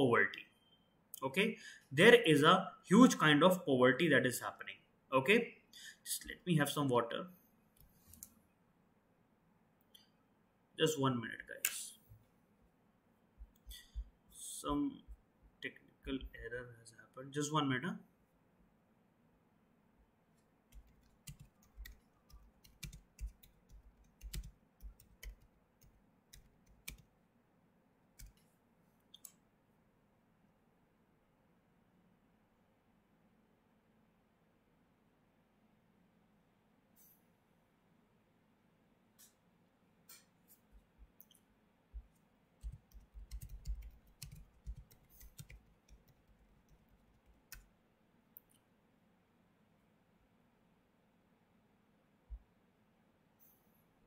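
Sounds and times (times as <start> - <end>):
computer keyboard keystrokes: 20.7 - 27.1, 28.2 - 28.4, 42.6 - 47.7.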